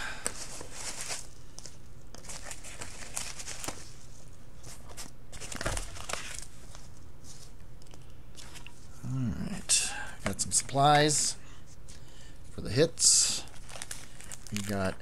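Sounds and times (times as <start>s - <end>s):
packing peanuts rustling: 0.2s - 7.6s, 13.0s - 15.0s.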